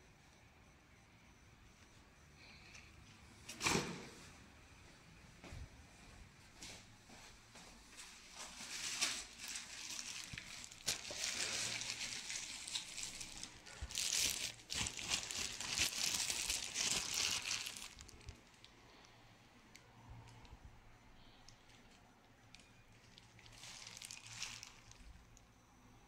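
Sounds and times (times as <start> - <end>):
plastic bag crinkling: 8.4 - 18.7, 22.6 - 25.2.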